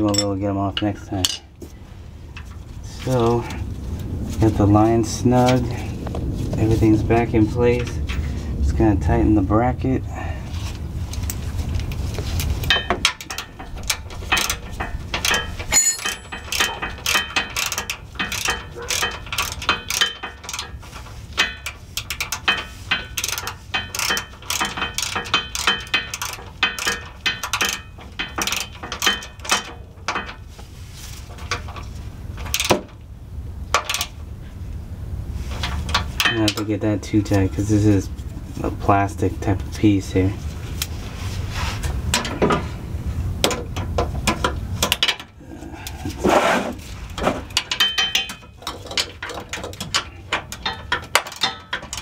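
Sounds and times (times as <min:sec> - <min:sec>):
ratchet clicking: 0:12.4 - 0:30.4, 0:31.4 - 0:32.9, 0:33.7 - 0:34.2, 0:47.5 - 0:52.0.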